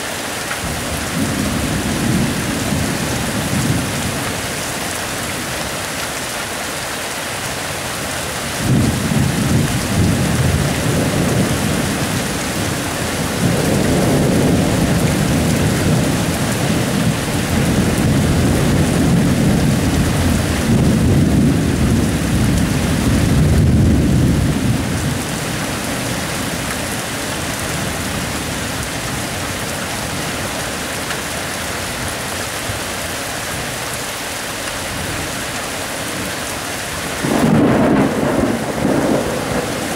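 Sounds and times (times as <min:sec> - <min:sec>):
steady rain hissing: 0:00.0 - 0:39.9
rolling thunder: 0:08.6 - 0:26.6, 0:37.1 - 0:39.9.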